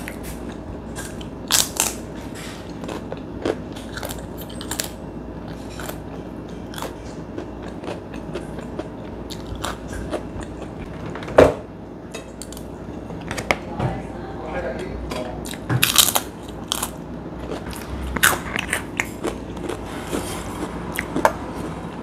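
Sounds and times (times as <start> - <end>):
crackers being chewed: 0.0 - 10.9, 15.5 - 22.0.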